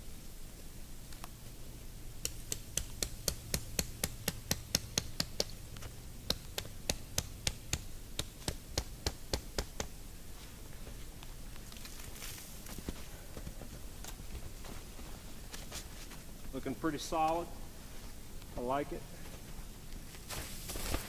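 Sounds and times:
stake hammered into ground: 0:02.2 - 0:05.6, 0:06.3 - 0:10.0.

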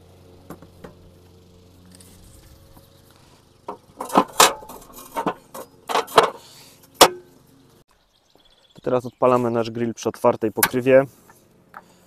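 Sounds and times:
metal grill parts clanking: 0:03.6 - 0:07.4, 0:10.6 - 0:12.0.

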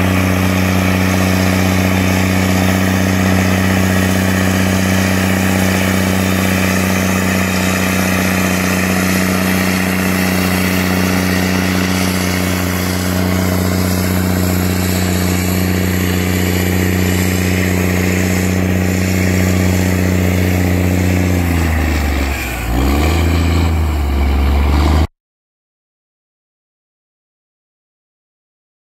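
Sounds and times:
tractor diesel engine droning: 0:00.0 - 0:25.1.

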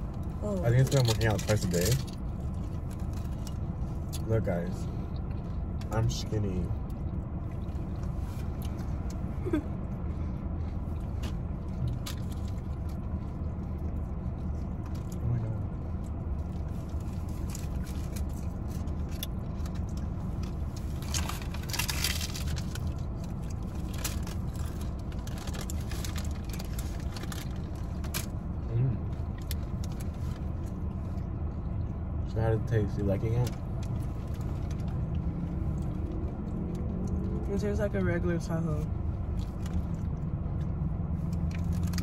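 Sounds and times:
low rumble inside a car: 0:00.0 - 0:42.0
paper wrapper crinkling: 0:20.9 - 0:28.3.

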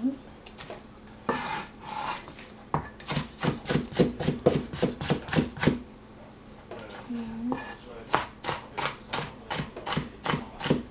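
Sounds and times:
rustling scrape: 0:01.3 - 0:02.6
cleaver chopping on plastic board: 0:03.0 - 0:05.8, 0:08.1 - 0:10.9.

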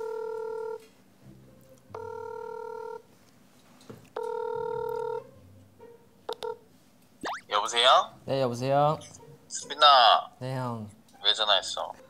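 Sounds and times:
phone ringing tone beeps: 0:02.0 - 0:03.0, 0:04.2 - 0:05.2.

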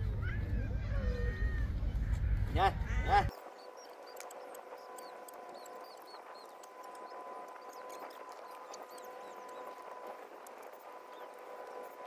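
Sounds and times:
distant engine hum: 0:00.0 - 0:12.0.

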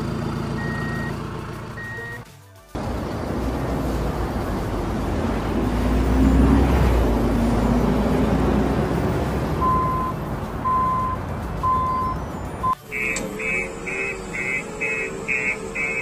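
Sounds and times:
truck engine rumbling: 0:00.0 - 0:16.0
reversing alarm beeping: 0:09.6 - 0:16.0.

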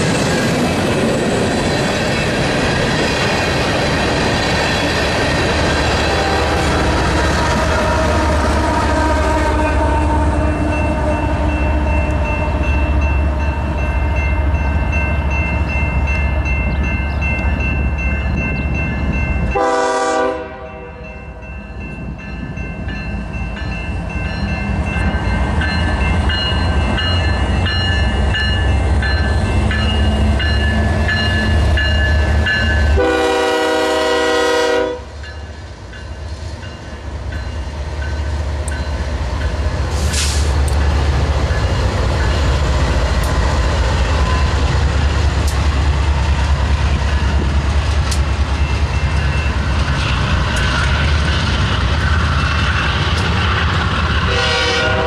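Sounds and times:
diesel locomotive rumble: 0:00.0 - 0:55.0
crossing bell ringing: 0:05.9 - 0:39.8, 0:40.8 - 0:43.2, 0:43.8 - 0:51.0
train horn blasts: 0:06.0 - 0:15.0, 0:19.5 - 0:21.2, 0:32.9 - 0:35.2, 0:54.2 - 0:55.0.

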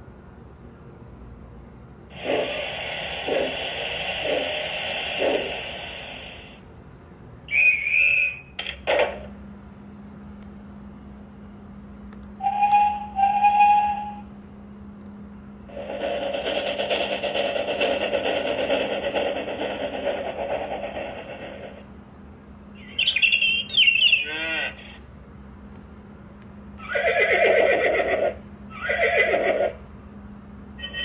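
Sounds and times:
steam train chuffing: 0:02.1 - 0:06.6, 0:15.7 - 0:22.0
train whistle: 0:07.5 - 0:08.5, 0:12.4 - 0:14.3
train hoots: 0:12.4 - 0:14.3
engine starting up: 0:15.7 - 0:21.9.

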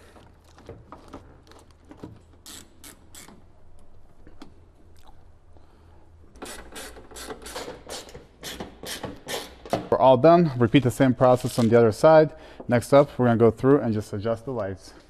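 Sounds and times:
hand ratchet clicking: 0:02.4 - 0:03.4.

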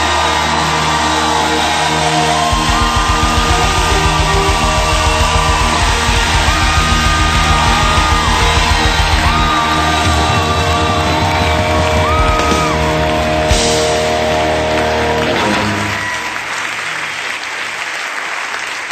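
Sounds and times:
rock song with singing: 0:00.0 - 0:14.2
applause: 0:00.0 - 0:18.9.

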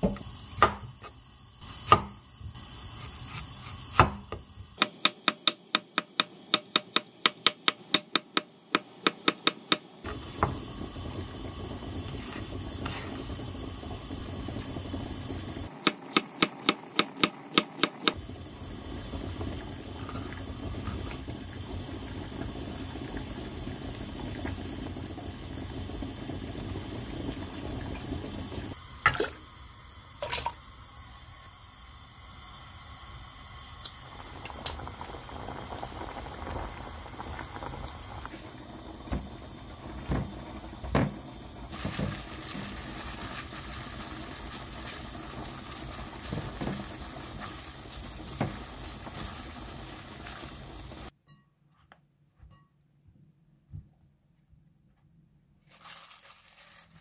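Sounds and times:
water in a pot on the stove: 0:00.0 - 0:51.4
egg mashed by hand in a bowl: 0:04.8 - 0:09.8.

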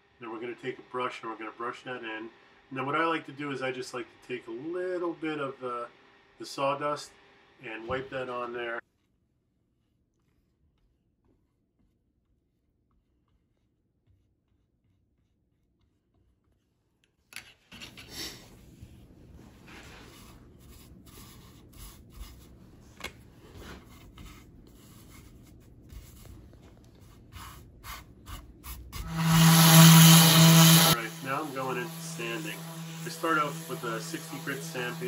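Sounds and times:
hands rubbing sawdust on wood: 0:18.5 - 0:35.0
orbital sander running: 0:29.0 - 0:35.0.

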